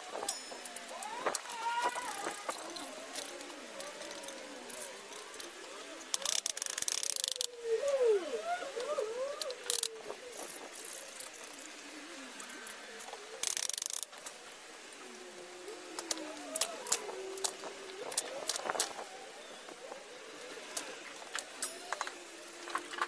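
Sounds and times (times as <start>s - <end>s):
gliding warbled bird calls: 0.0s - 23.0s.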